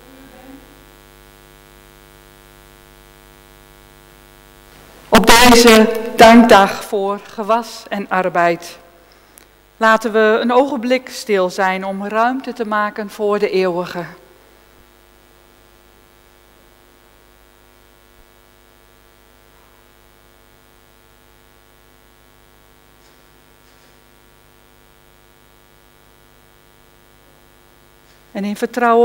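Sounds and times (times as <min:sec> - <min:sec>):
electrical mains hum: 0:00.0 - 0:29.0.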